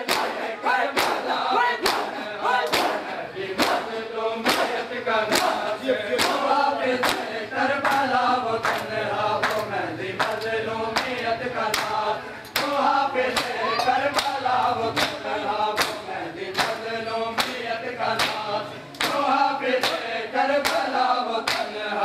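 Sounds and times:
hands slapping chests: 0.0s - 6.4s, 15.8s - 16.0s, 20.6s - 21.7s
men chanting in unison: 0.0s - 22.0s.

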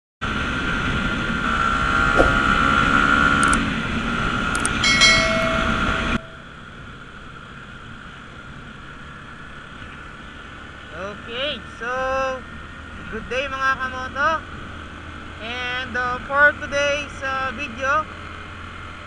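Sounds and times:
wind and motorcycle road noise: 0.2s - 19.0s
whooshing sound effect: 2.0s - 3.0s
sharp clicks: 3.4s - 3.6s, 4.5s - 4.8s
bell chime ringing: 4.8s - 6.6s.

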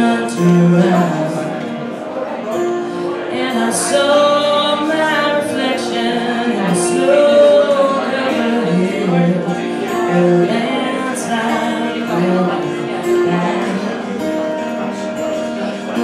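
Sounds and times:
woman singing: 0.0s - 1.6s, 3.2s - 14.2s
fingerpicked acoustic guitar: 0.0s - 16.0s.

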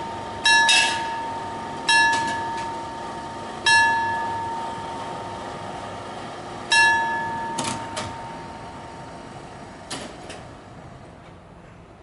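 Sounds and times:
level-crossing warning bell: 0.0s - 9.3s.

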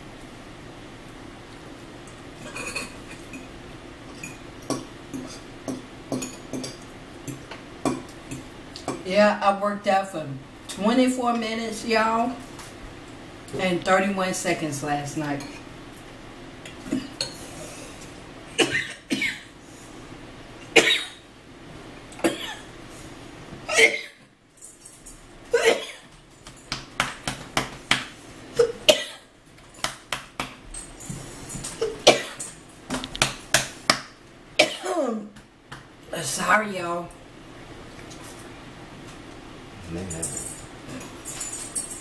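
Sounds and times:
person coughing: 23.7s - 24.2s, 25.5s - 26.1s, 31.8s - 32.5s, 34.6s - 35.2s.

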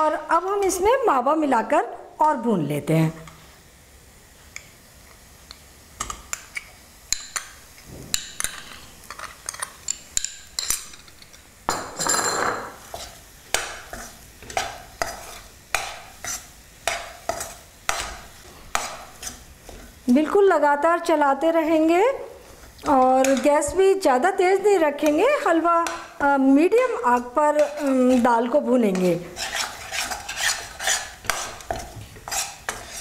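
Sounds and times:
spoon scraping a pan: 8.1s - 20.2s, 22.4s - 23.8s, 26.8s - 33.0s.

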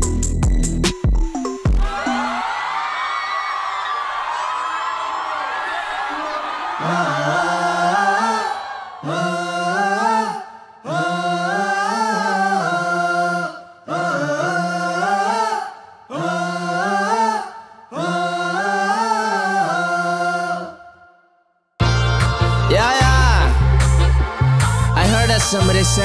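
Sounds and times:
loud beat with heavy bass: 0.0s - 2.0s, 22.2s - 26.0s
men singing chant in harmony: 6.8s - 20.8s.

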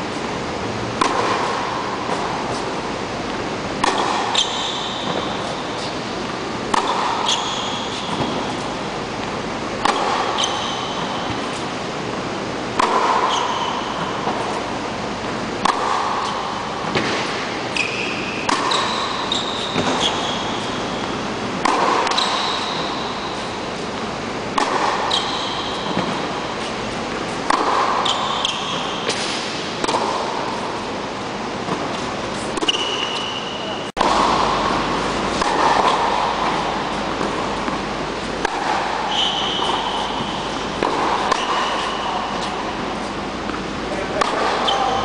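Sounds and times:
tennis racket hitting ball: 0.1s - 12.0s, 12.6s - 45.0s
shoe squeaks on court: 10.3s - 11.2s, 17.7s - 21.0s, 25.1s - 25.9s, 39.1s - 40.4s.

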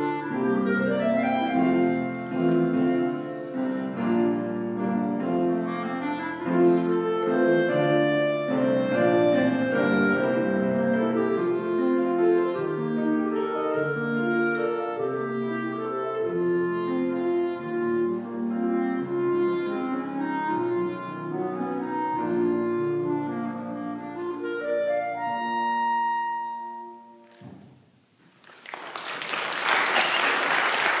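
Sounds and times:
clarinet and piano playing: 0.0s - 27.4s
applause: 28.4s - 31.0s.

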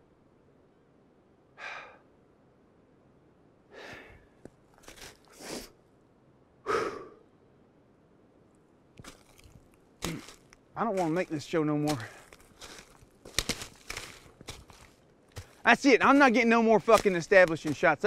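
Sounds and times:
man breathing hard: 1.6s - 2.1s, 3.7s - 4.4s, 6.6s - 7.2s.

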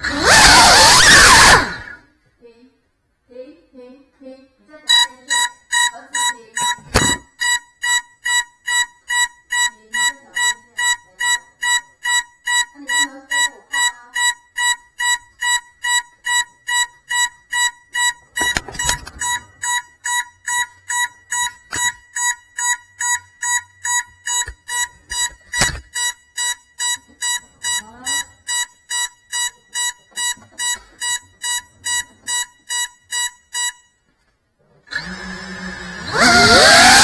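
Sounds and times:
repeated high beep: 4.9s - 34.1s.

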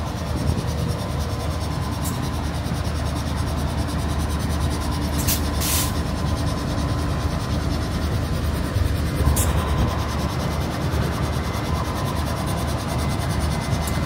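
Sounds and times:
locomotive engines rumbling: 0.0s - 14.0s
short hisses: 5.2s - 6.0s.

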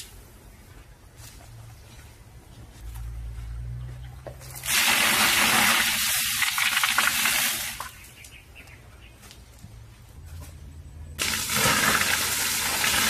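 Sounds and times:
water gushing: 4.5s - 8.0s, 11.2s - 13.0s.

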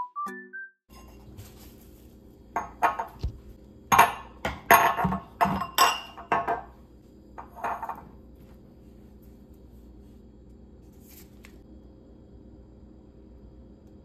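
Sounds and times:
glass bottles clanking on countertop: 2.6s - 3.2s, 3.9s - 6.7s, 7.4s - 8.0s.

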